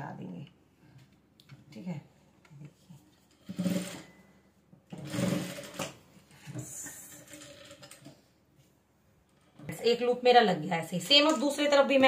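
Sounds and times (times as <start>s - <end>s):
sewing machine stitching: 3.4s - 4.2s, 4.9s - 6.0s.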